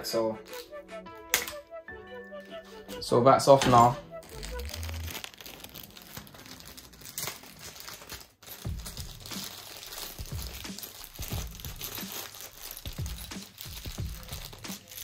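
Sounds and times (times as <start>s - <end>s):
plastic bag crinkling: 3.7s - 15.0s.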